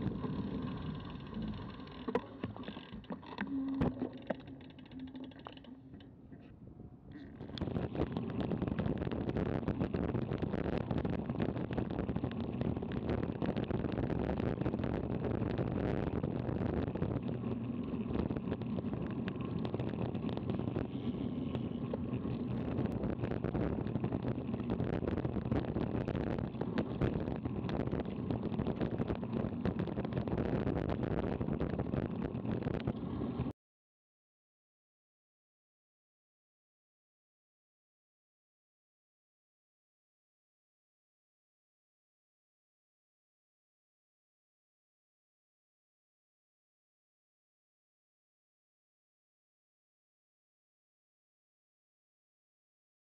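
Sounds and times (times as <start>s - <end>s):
bike clicks and rattles: 0.1s - 6.1s.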